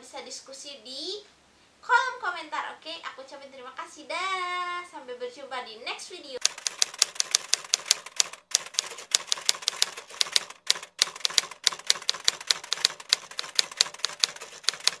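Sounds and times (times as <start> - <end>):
typewriter key clacks: 6.4 - 15.0.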